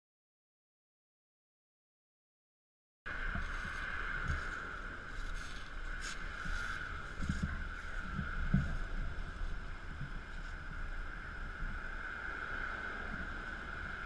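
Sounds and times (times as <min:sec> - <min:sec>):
soft low bumps: 0:03.1 - 0:11.9
outdoor background noise: 0:03.1 - 0:14.0
brief rustle: 0:03.4 - 0:08.8.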